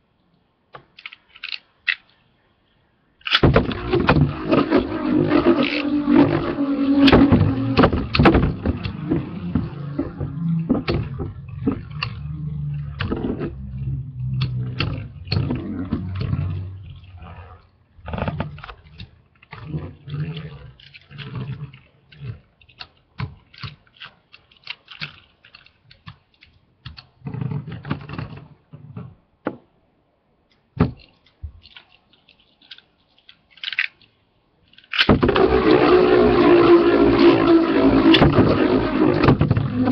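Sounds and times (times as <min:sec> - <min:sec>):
spinning tops whirring: 0:03.4 - 0:15.5.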